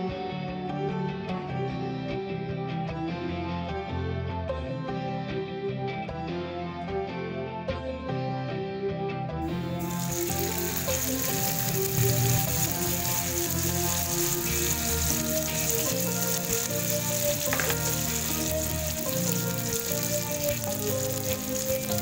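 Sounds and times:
background music: 0.0s - 22.0s
food sizzling in hot oil: 9.4s - 22.0s.

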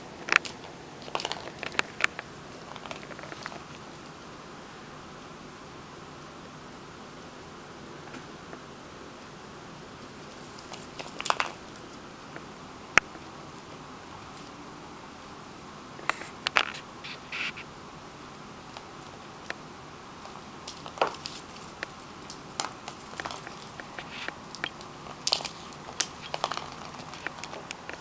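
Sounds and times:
kitten paws scrabbling: 20.6s - 28.0s.

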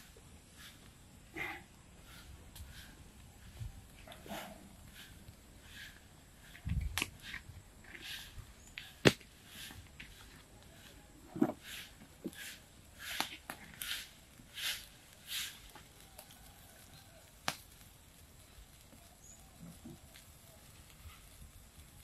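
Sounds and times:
rustling scrapes: 0.0s - 15.9s.

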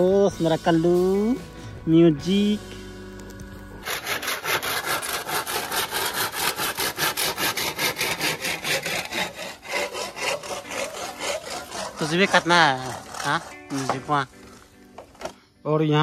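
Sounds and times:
hand saw cutting bamboo: 3.8s - 15.3s.

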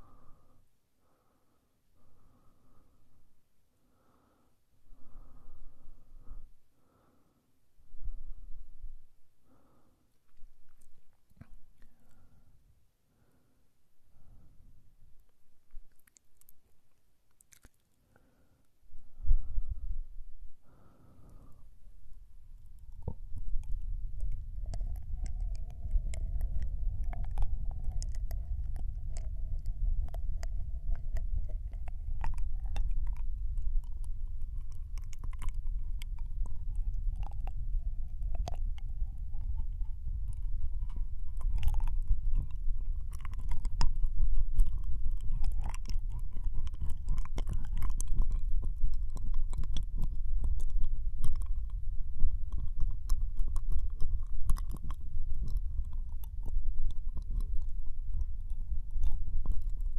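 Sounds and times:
low rumble from microphone contact: 7.8s - 12.5s, 18.9s - 59.9s
wet mouth clicks and smacks: 10.1s - 12.4s, 15.2s - 18.0s, 22.6s - 59.9s.

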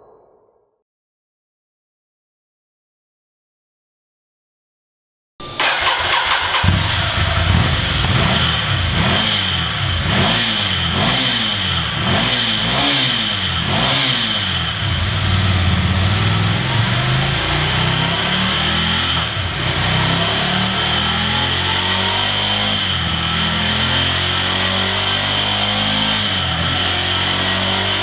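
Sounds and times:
motorcycle engine revving and idling: 5.6s - 28.0s.

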